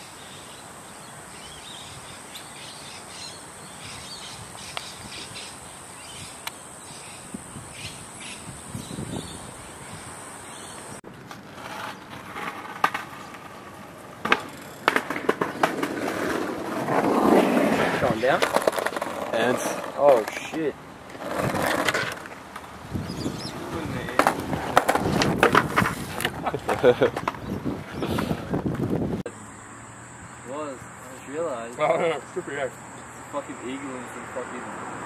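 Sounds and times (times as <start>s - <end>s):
steady outdoor hiss: 0.0s - 35.0s
skateboard rolling on pavement: 0.1s - 29.2s
skateboard clacks: 11.2s - 22.8s, 23.6s - 27.5s.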